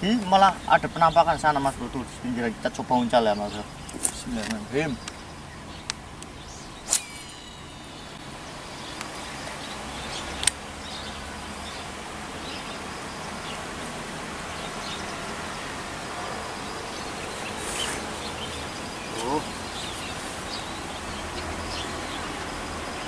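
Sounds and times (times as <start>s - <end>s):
outdoor background noise: 0.0s - 23.0s
fishing line whirring out: 6.6s - 8.2s, 17.3s - 19.6s.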